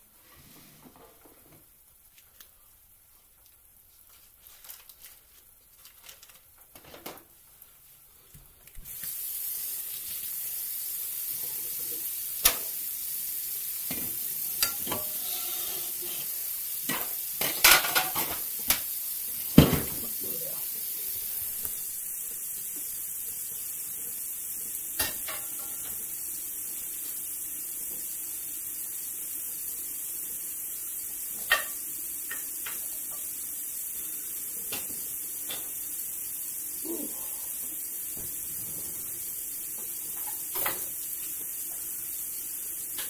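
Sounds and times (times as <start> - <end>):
steady high hiss: 7.2 - 43.0
pots and utensils clinking: 13.9 - 18.8, 25.0 - 26.1, 31.3 - 33.3, 39.8 - 41.0.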